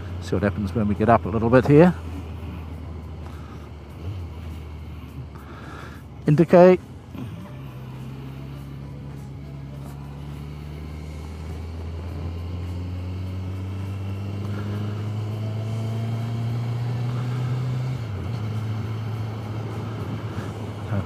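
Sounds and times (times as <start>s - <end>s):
motorcycle engine accelerating: 6.9s - 21.0s.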